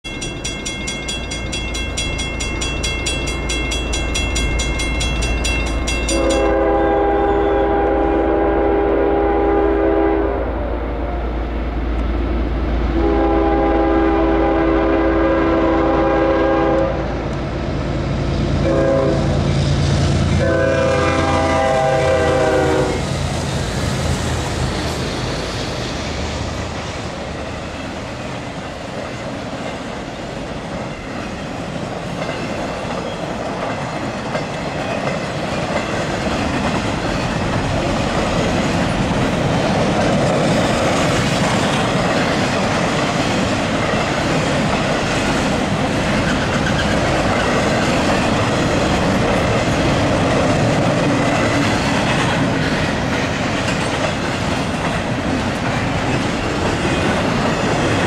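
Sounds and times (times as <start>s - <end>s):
crossing bell ringing: 0.0s - 7.6s
train cars clickety-clack: 0.0s - 10.2s, 13.0s - 58.0s
locomotive air horn blasts: 6.1s - 11.4s, 13.0s - 17.2s, 18.6s - 19.5s, 20.3s - 23.1s.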